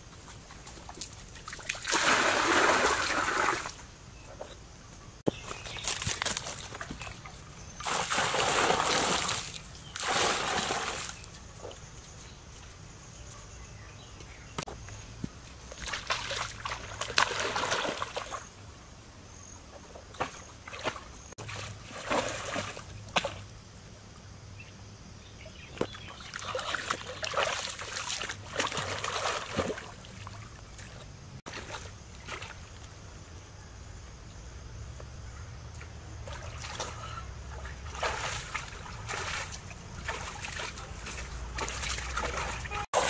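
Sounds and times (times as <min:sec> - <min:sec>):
pool water splashing: 0:01.4 - 0:03.8, 0:07.8 - 0:11.3, 0:26.2 - 0:32.6, 0:36.2 - 0:43.0.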